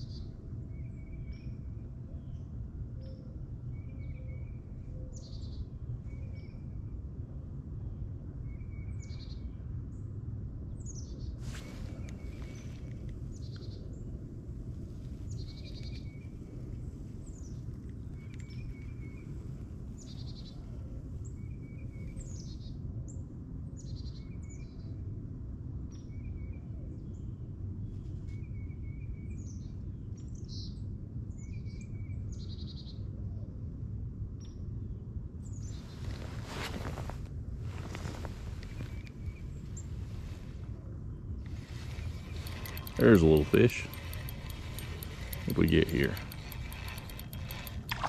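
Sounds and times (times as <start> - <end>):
songbird singing: 41.5 - 48.0.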